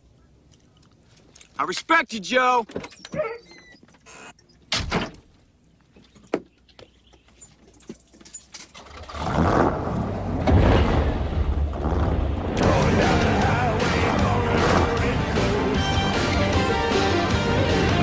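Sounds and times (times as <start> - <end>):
loud car engines running: 12.1 - 18.0.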